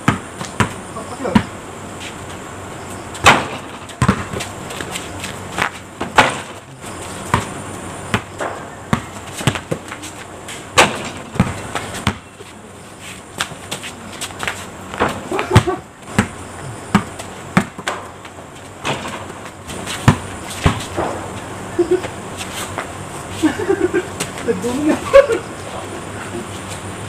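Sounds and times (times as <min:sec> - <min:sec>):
basketball bouncing on concrete: 0:00.0 - 0:01.6, 0:03.1 - 0:12.6, 0:13.4 - 0:21.5.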